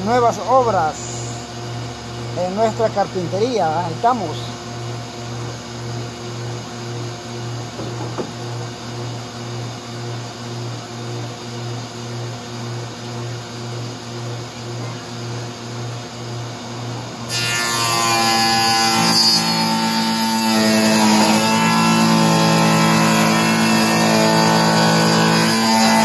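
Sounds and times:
jointer-planer humming: 17.3s - 26.0s
planer cutting wood: 17.3s - 26.0s.

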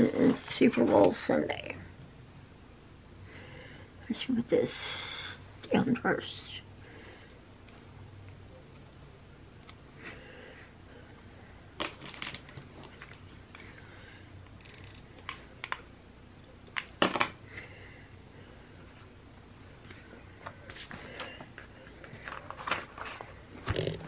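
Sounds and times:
paper handling: 22.0s - 23.4s.

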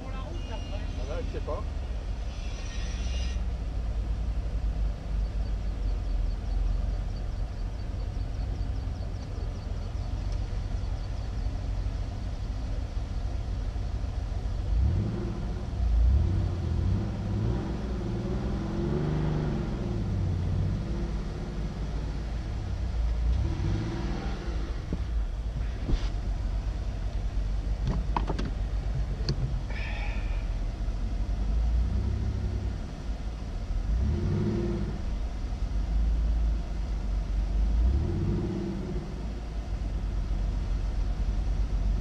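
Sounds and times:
car engine idling: 0.0s - 42.0s
engine revving: 14.6s - 25.0s, 33.8s - 35.2s, 37.6s - 39.4s.

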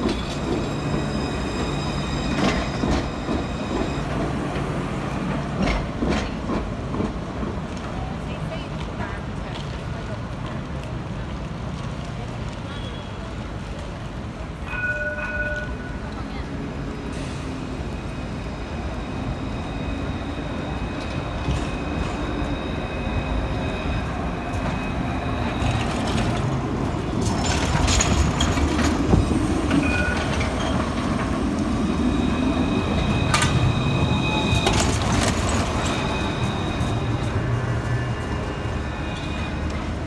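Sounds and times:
tram rumbling past: 0.0s - 40.0s
wheels clicking over rail junction: 23.9s - 37.4s.

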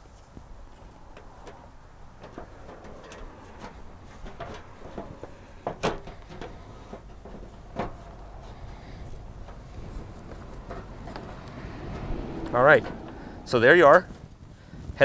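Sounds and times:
plastic knocks and rattles: 2.2s - 8.4s.

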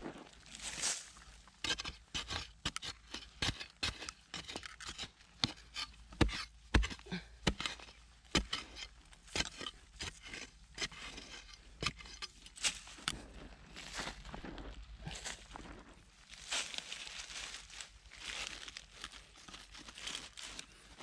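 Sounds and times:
digging tool scraping gravelly soil: 0.0s - 21.0s.

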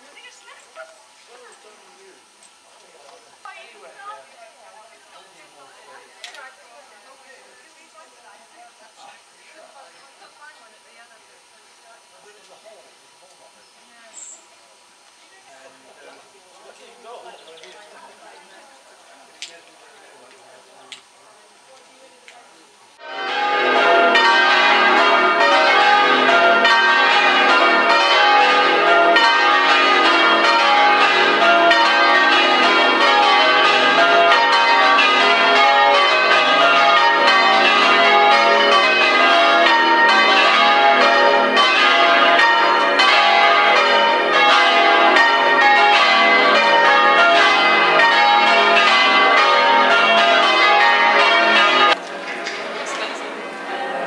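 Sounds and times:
church bells change ringing: 23.0s - 54.0s.

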